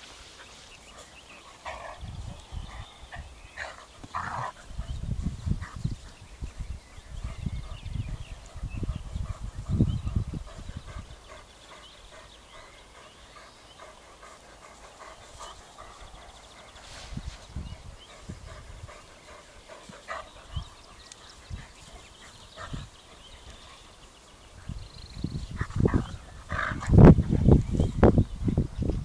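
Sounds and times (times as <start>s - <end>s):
puppies panting: 0.2s - 28.7s.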